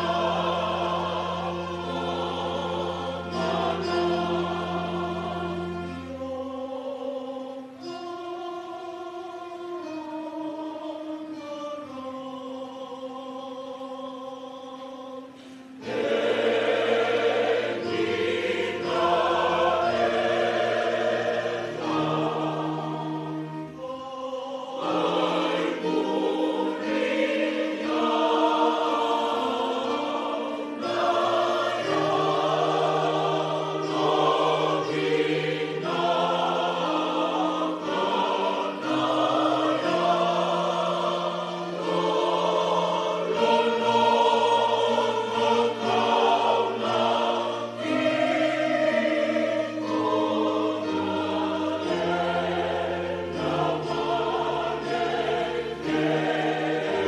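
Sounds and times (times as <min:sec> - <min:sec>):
choir singing a hymn: 0:00.0 - 0:57.0.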